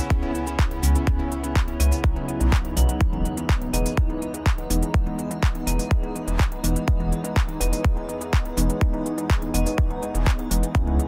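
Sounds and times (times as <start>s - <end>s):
electronic dance music: 0.0s - 11.0s
steady kick drum: 0.0s - 11.0s.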